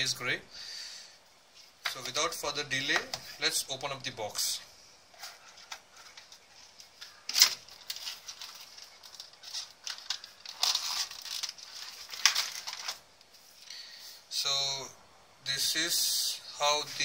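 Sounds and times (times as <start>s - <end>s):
plastic packaging crinkling: 5.2s - 13.3s.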